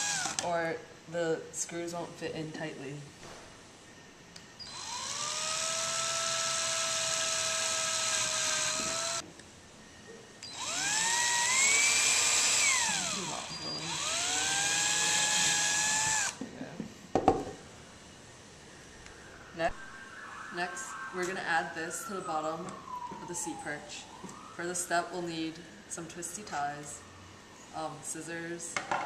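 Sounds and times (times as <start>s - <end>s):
drill motor whine: 0.0s - 0.4s, 4.6s - 9.2s, 10.4s - 16.4s.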